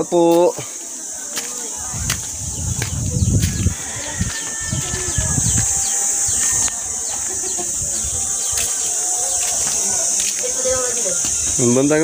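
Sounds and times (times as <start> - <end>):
insects droning: 0.0 - 12.0
low rumbling thuds: 1.9 - 5.8.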